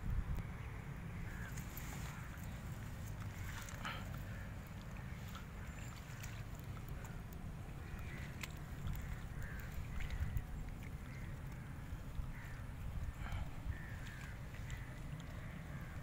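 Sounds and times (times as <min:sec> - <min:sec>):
low steady rumble: 0:00.0 - 0:16.0
faint short bird calls: 0:12.3 - 0:16.0.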